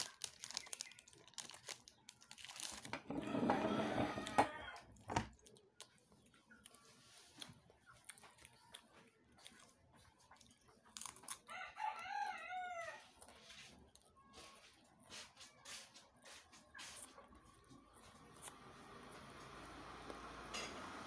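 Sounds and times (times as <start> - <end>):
person chewing cracker: 0.0 - 3.0, 4.8 - 12.4
rooster crowing: 3.1 - 4.9, 11.5 - 13.1.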